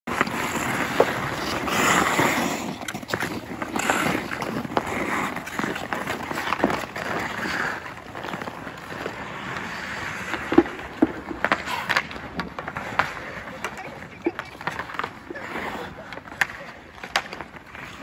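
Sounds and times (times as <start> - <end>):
hockey sticks clacking: 0.1 - 18.0
skate blades scraping ice: 0.1 - 18.0.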